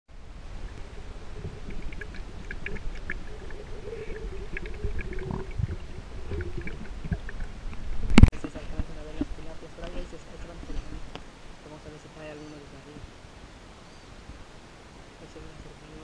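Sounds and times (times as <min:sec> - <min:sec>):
muffled underwater rumbling: 0:00.1 - 0:11.8.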